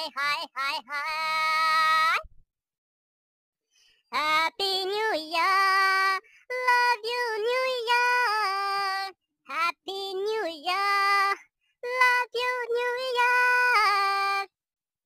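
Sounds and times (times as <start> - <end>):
high-pitched voice singing: 0.0 - 2.4, 4.1 - 14.6.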